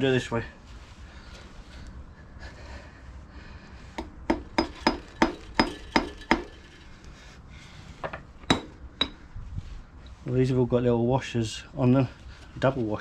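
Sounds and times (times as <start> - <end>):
hammer clinking on metal: 4.0 - 6.8, 8.4 - 9.2.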